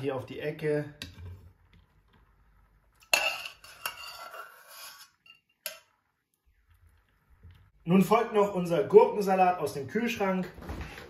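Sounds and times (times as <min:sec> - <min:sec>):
metal spatula scraping pot: 0:02.9 - 0:06.1.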